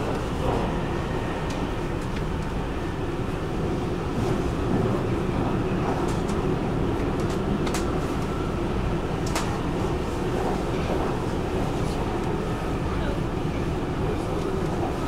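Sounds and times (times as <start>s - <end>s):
metro train wheels rumbling on rails: 0.0s - 15.0s
sharp clicks of train wheels: 7.0s - 8.3s, 9.2s - 9.6s.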